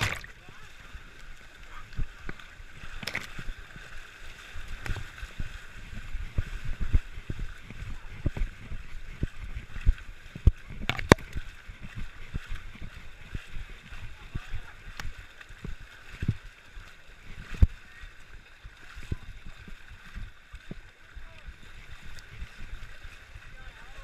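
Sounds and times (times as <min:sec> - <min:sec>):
sharp loud splash: 0:00.0 - 0:00.4, 0:10.8 - 0:11.4
low thuds of legs in water: 0:00.0 - 0:00.5, 0:02.0 - 0:03.9, 0:04.6 - 0:16.5
people wading through water: 0:00.0 - 0:24.0.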